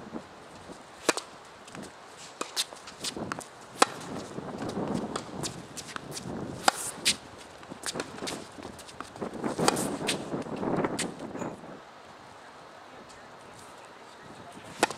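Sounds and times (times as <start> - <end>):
tennis racket hitting ball: 1.0 - 10.4
tennis ball bouncing knocks: 2.4 - 4.2.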